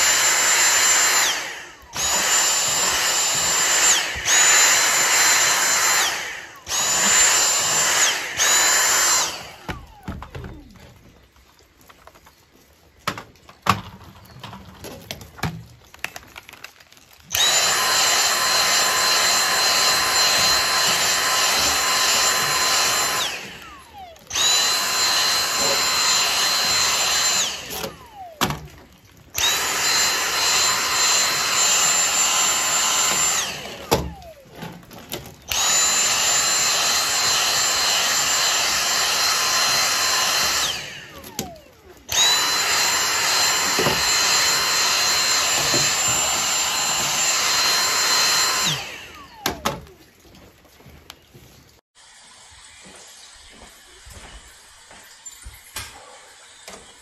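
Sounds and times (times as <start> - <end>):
handheld vacuum cleaner whine: 0.0 - 11.4, 17.0 - 50.1.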